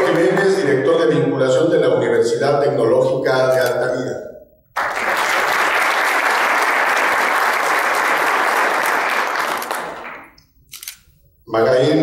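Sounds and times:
audience applauding: 0:00.0 - 0:00.6, 0:04.8 - 0:10.3.

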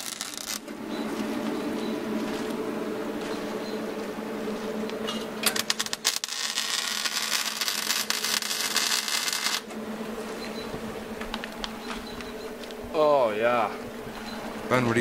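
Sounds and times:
arc welder crackling: 0:00.0 - 0:15.0
low hum: 0:00.0 - 0:15.0.

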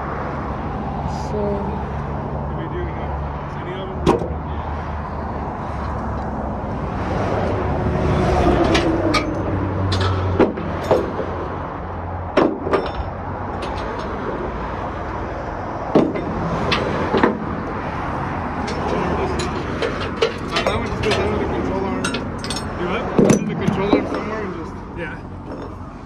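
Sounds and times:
strap hooks clanking on metal: 0:18.6 - 0:21.4, 0:22.0 - 0:23.9.

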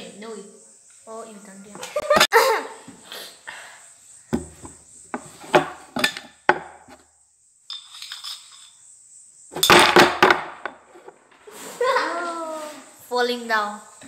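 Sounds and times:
small objects clicking and clinking: 0:07.7 - 0:08.8.

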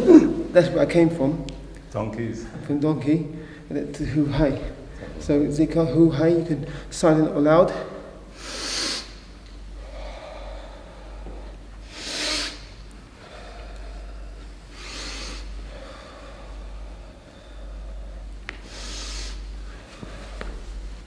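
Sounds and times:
man breathing forcefully: 0:03.3 - 0:03.7, 0:07.9 - 0:20.9.

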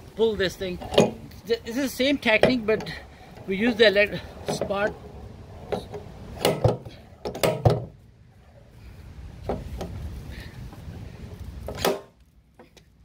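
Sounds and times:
low rumble: 0:03.0 - 0:11.6.

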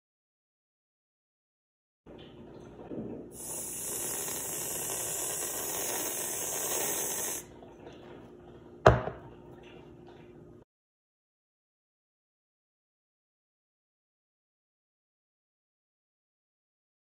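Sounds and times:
aerosol can spraying: 0:03.4 - 0:07.4.

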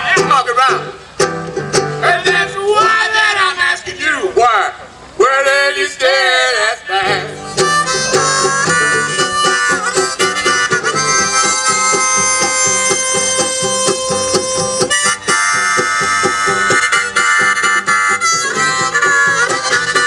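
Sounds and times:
strummed banjo: 0:00.0 - 0:02.7, 0:07.1 - 0:20.0
harmonica chords: 0:07.1 - 0:20.0.

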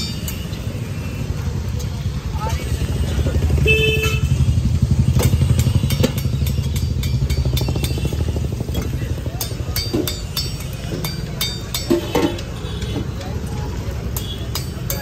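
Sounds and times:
metal spoon clinking on pots: 0:05.3 - 0:08.1, 0:08.7 - 0:15.0.

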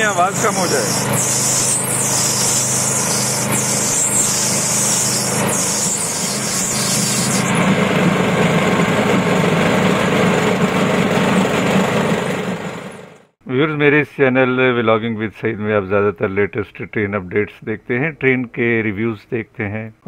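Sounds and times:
small engine running: 0:00.0 - 0:13.3.

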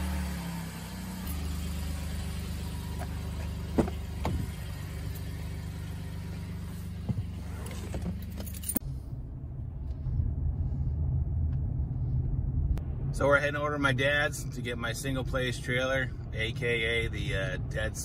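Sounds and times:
engine humming: 0:00.0 - 0:18.0
car door shutting: 0:02.8 - 0:05.3, 0:06.8 - 0:08.8.

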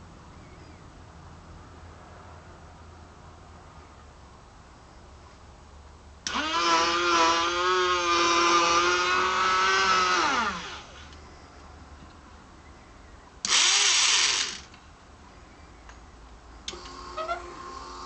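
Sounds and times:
small electric winch motor whining: 0:06.2 - 0:11.2, 0:13.5 - 0:14.8, 0:16.7 - 0:18.0.

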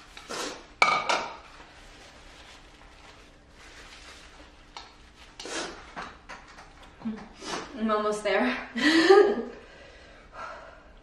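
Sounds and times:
nose blowing into napkin: 0:00.3 - 0:00.7.

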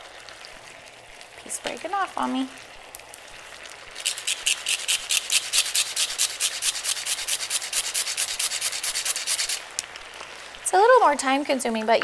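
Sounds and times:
cinnamon stick grated on zester: 0:04.0 - 0:09.6.

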